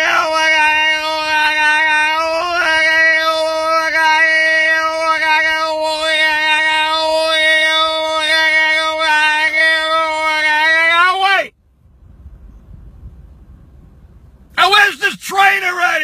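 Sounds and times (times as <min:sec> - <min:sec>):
man singing a held note: 0:00.0 - 0:11.5.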